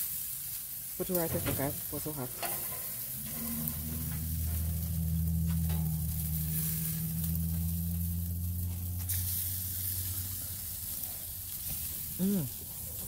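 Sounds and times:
chicken sizzling on a grill: 0:00.0 - 0:13.0
low hum: 0:01.3 - 0:13.0.

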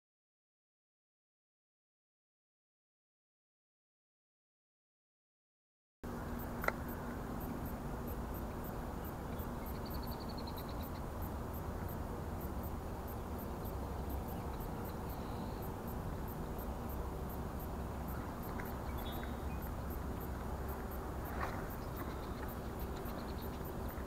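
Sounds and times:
low outdoor background noise: 0:06.0 - 0:24.0.

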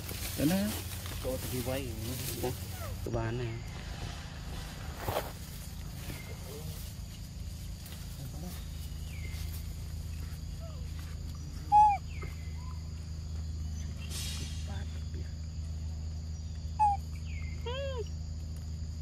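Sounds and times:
insect drone: 0:00.0 - 0:19.0
bird calls: 0:05.9 - 0:06.8, 0:08.0 - 0:14.3, 0:15.6 - 0:18.2
loud arched bird chirp: 0:11.4 - 0:13.0, 0:16.3 - 0:18.0.

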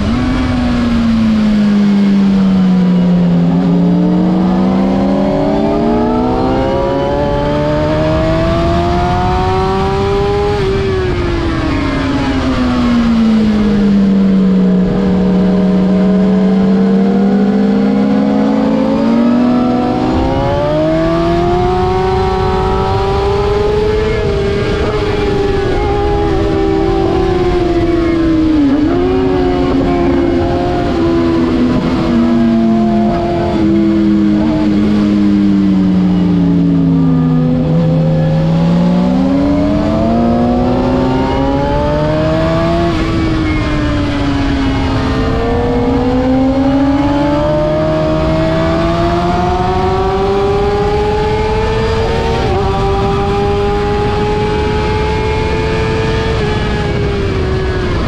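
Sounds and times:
motorcycle engine revving: 0:00.0 - 0:58.0
wind rush: 0:19.3 - 0:58.0.

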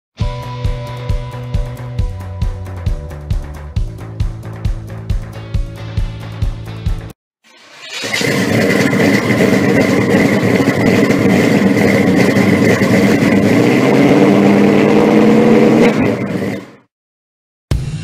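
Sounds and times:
loud engine running: 0:08.1 - 0:16.9.

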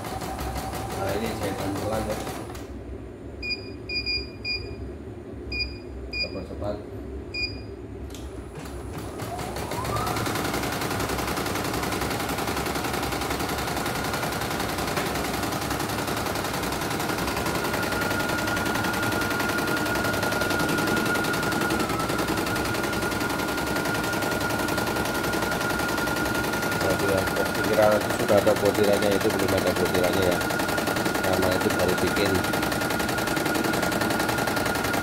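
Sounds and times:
key beep: 0:03.4 - 0:04.8, 0:07.4 - 0:07.6.

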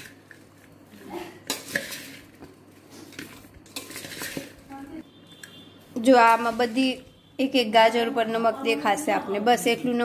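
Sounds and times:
carrot strips rustling in a bowl: 0:00.0 - 0:05.0.

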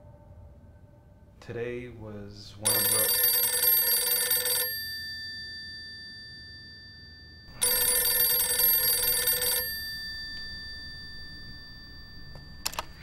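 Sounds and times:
telephone bell ringing: 0:02.7 - 0:13.0.

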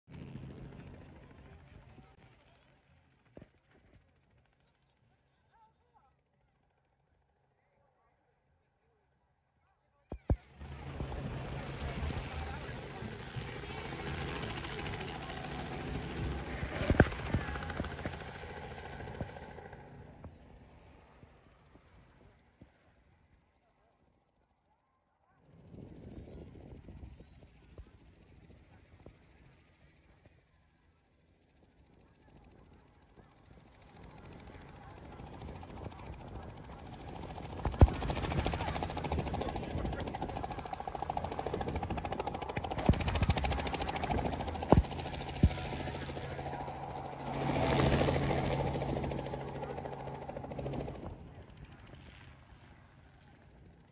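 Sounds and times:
aircraft engines droning overhead: 0:00.1 - 0:03.1, 0:10.4 - 0:24.2, 0:25.4 - 0:53.9
airship propeller engines droning: 0:35.0 - 0:51.2.

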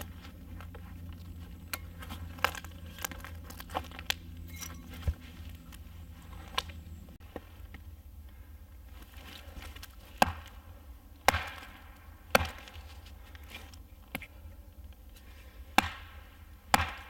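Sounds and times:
axe chopping into log: 0:10.2 - 0:10.5, 0:11.2 - 0:12.8, 0:15.8 - 0:17.0.

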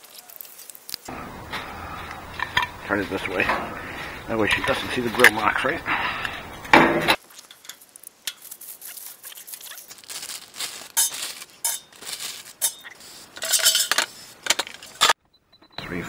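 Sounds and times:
plastic bag crinkling: 0:00.0 - 0:01.1, 0:07.2 - 0:15.0
metal basket and utensils clinking: 0:01.1 - 0:15.2.

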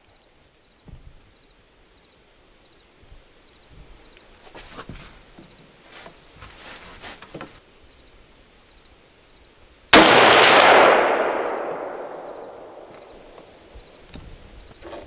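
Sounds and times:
rifle shot with rolling echo: 0:09.9 - 0:13.6.

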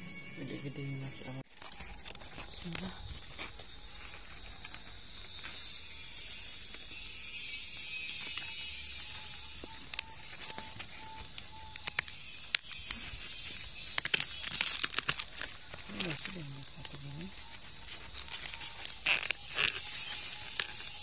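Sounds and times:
corn husk rustling and crackling: 0:01.4 - 0:21.0
husk tearing: 0:01.4 - 0:21.0
sharp snaps and clicks: 0:08.0 - 0:21.0.

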